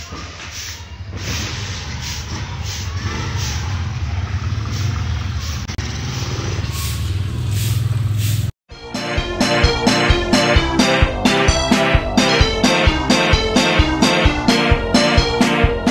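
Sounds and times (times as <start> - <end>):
small motorcycle engine passing: 1.3 - 8.5.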